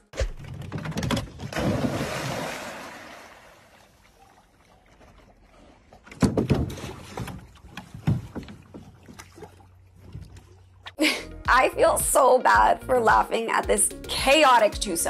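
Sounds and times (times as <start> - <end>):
water splashing and dripping: 0.1 - 11.0
dog splashing into lake: 1.4 - 4.4
knocks on canoe: 6.1 - 9.3.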